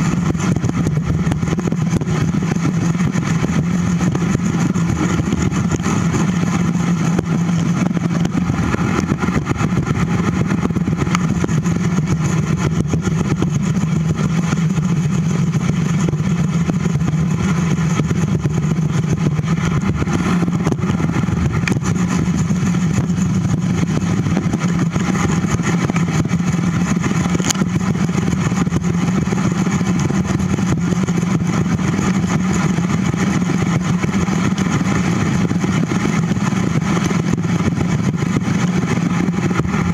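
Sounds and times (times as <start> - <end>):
bicycle tyres rumbling: 0.0 - 39.9
wind noise: 0.0 - 39.9.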